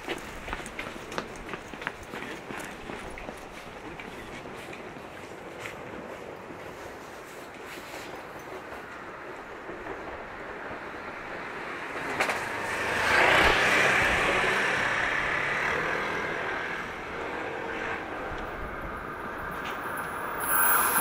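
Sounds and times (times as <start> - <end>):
electric train passing: 3.4 - 21.0.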